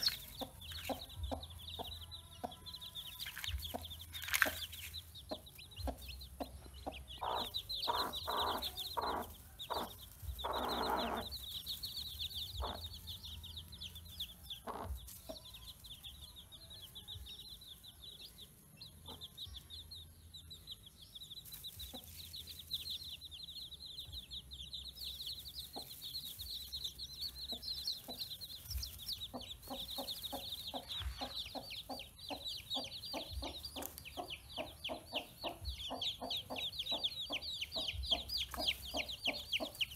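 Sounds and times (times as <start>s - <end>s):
chicks peeping: 0.0s - 39.9s
hen clucking: 3.4s - 13.1s, 14.6s - 15.1s, 27.3s - 39.9s.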